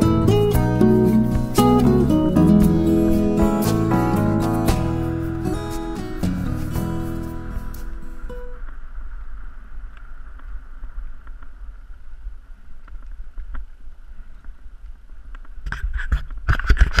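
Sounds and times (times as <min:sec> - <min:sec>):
wind rumbling over microphone: 0:04.9 - 0:17.0.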